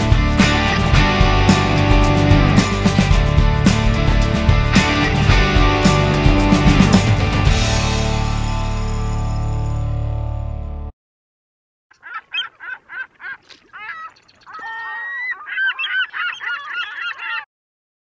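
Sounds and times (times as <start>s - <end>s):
geese honking: 12.0s - 17.5s.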